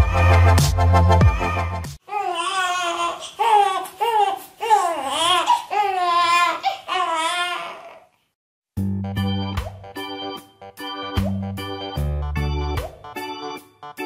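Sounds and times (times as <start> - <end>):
infant crying: 1.3 - 8.2.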